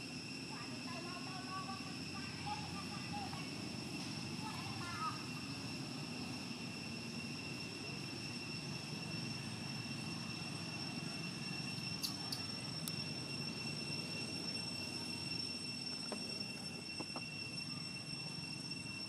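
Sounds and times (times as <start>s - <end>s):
high-pitched insect drone: 0.0s - 19.0s.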